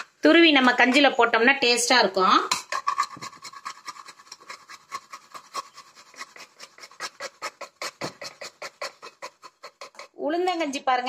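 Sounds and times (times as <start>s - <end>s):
coconut rasping on metal grater: 2.6s - 11.0s.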